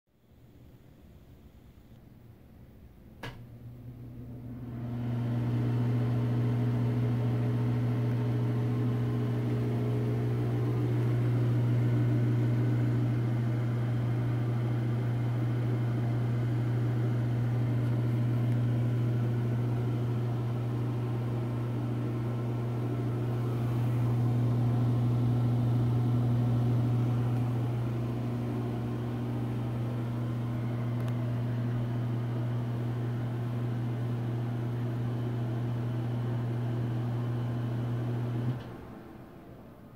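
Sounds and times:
exhaust fan buzzing: 3.0 - 39.9
fan airflow rushing: 17.0 - 33.7.

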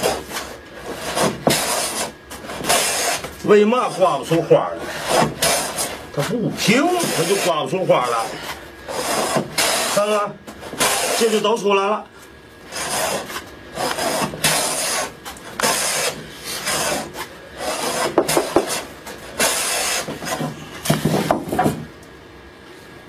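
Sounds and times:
hand plane rasping on wood: 8.9 - 11.5, 12.7 - 20.6.

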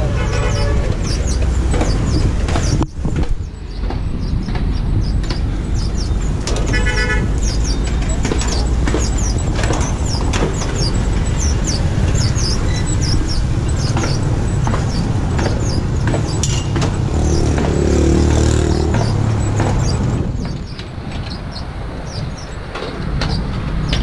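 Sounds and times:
road traffic rumble: 0.0 - 24.0
vehicle engine passing: 3.8 - 22.5.

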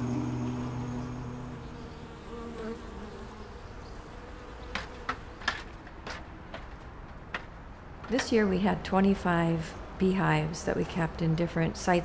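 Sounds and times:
honeybees buzzing: 0.0 - 5.8.

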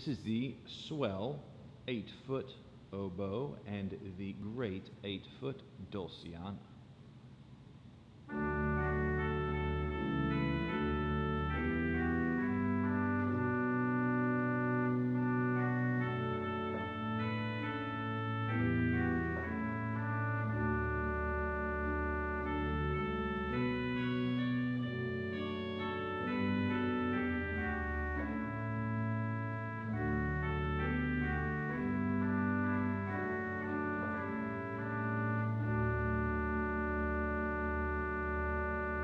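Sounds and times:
pipe organ playing slow chords: 8.2 - 39.0.

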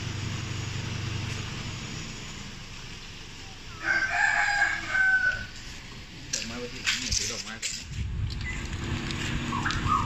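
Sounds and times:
rooster crowing: 3.7 - 5.6.

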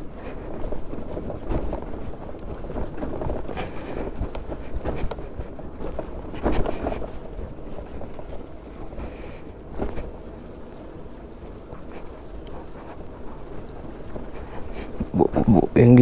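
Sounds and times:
wind buffeting microphone: 0.0 - 16.0
scooter body rattling: 1.2 - 8.4.

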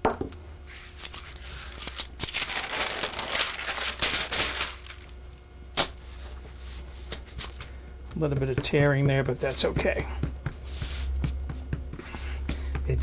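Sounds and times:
parchment paper rustling: 0.7 - 5.2, 5.9 - 12.9
hands brushing dough: 6.0 - 13.0.

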